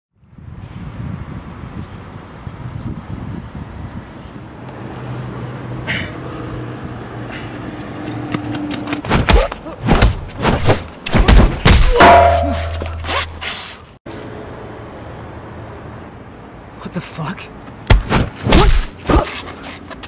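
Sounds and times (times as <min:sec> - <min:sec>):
loud fight thuds: 0:09.1 - 0:13.0.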